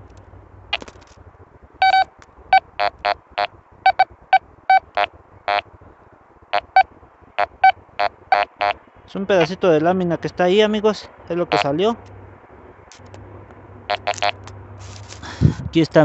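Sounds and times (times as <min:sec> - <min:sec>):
metal detector beeps: 0:01.8 - 0:03.2, 0:03.9 - 0:04.1, 0:04.7 - 0:05.6, 0:06.6 - 0:06.8, 0:07.4 - 0:08.8, 0:13.9 - 0:14.4.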